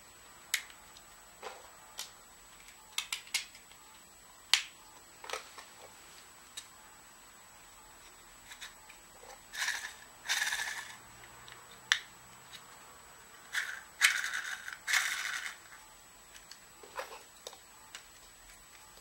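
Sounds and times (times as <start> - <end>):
plastic parts scraping and rattling: 13.5 - 15.7.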